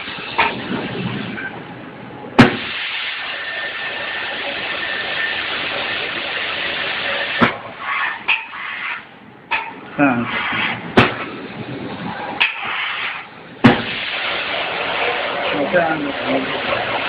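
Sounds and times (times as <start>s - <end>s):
spray guns hissing: 2.5s - 9.0s, 12.5s - 17.0s.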